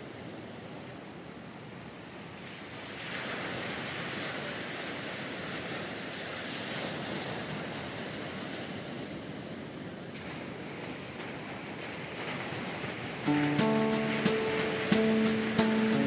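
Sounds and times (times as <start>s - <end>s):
rough sea surf breaking: 10.4s - 16.0s.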